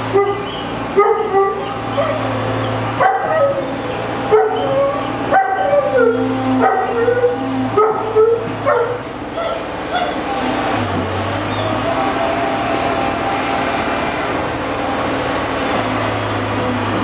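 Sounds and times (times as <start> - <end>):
puppies yipping and whining: 0.1 - 10.3.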